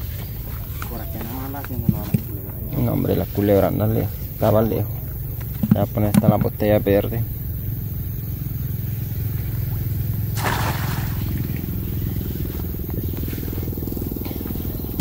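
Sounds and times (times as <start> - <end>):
net splashing into water: 10.4 - 11.6.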